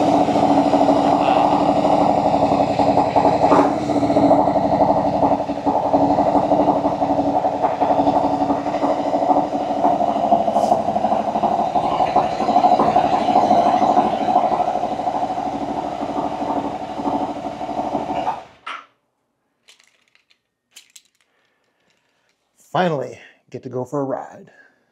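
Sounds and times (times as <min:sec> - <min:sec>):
motorcycle engine idling: 0:00.0 - 0:18.3.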